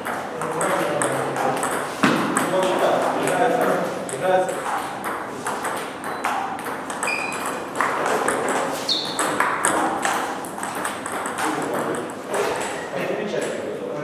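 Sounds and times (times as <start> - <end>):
distant ball clicks: 0.0 - 12.2
table tennis ball clicking: 4.1 - 12.2
high squeaks: 7.0 - 7.6, 8.8 - 9.4.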